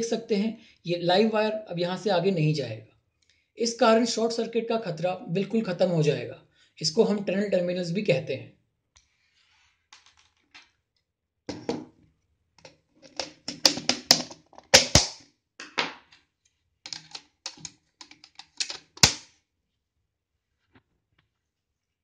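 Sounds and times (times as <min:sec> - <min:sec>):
hard plastic clicking: 0:12.6 - 0:15.1, 0:16.9 - 0:19.2.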